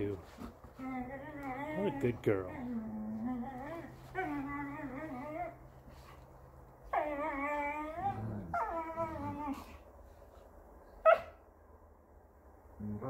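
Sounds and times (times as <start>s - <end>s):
dog growling: 0.4s - 5.6s, 7.0s - 9.8s
dog whining: 0.6s - 6.1s, 6.9s - 9.8s.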